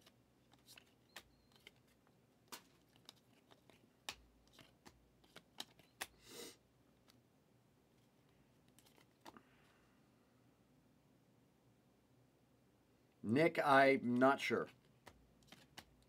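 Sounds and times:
cards flicking: 0.0 - 6.2, 14.8 - 16.0.

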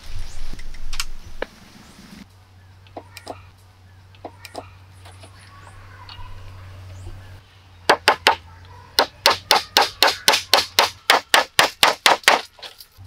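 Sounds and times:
hammer driving nail into wood: 9.0 - 12.5.

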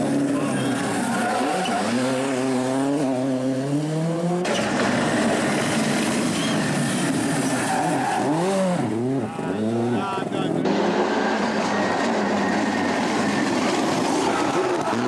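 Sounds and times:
rally car engine accelerating: 0.0 - 15.0.

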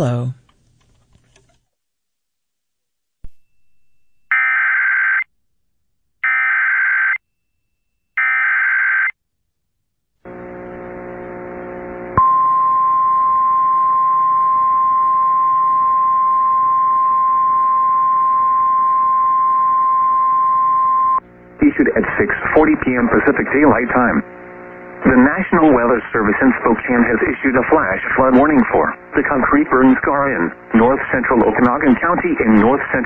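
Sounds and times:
low buzz: 10.3 - 22.3, 22.9 - 27.6
steady attention tone: 10.3 - 32.8.

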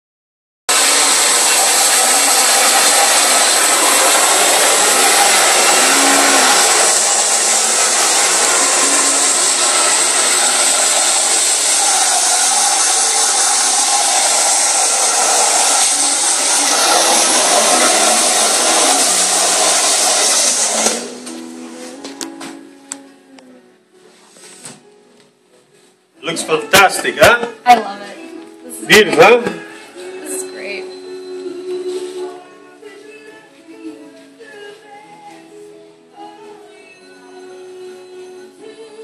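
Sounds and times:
hair dryer blowing: 0.7 - 21.4.

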